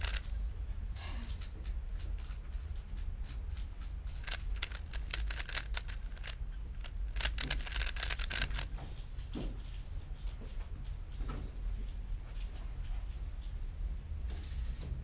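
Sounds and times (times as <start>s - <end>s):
puzzle cube layers clicking: 0.0s - 0.4s, 4.1s - 8.7s
steady low hum: 0.0s - 15.0s.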